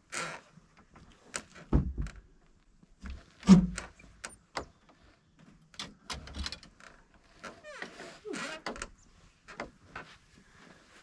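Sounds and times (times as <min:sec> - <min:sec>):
things knocking inside wooden shed: 0:01.6 - 0:02.4
wooden door bumping: 0:01.7 - 0:02.2.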